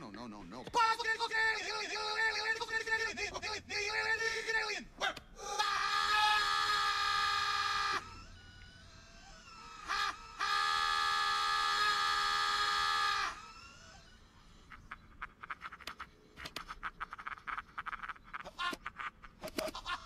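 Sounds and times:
cartoon scream: 3.8 - 14.3.

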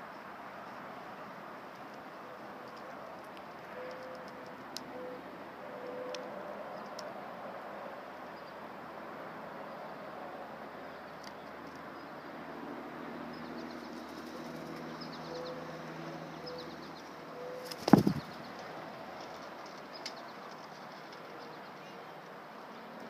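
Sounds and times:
outdoor background hiss: 0.0 - 23.0
bird wings flapping: 17.6 - 18.4.

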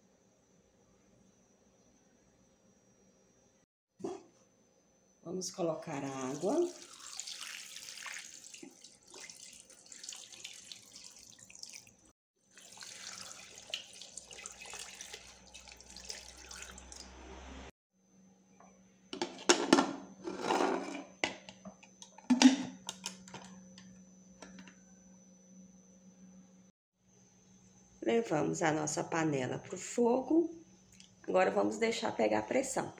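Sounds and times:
water pouring and splashing: 6.2 - 17.2.

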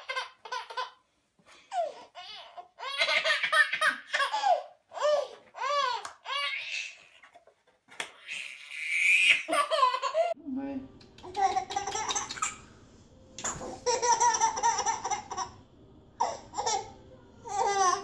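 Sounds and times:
toddler laughing: 9.2 - 10.4, 13.5 - 15.6.

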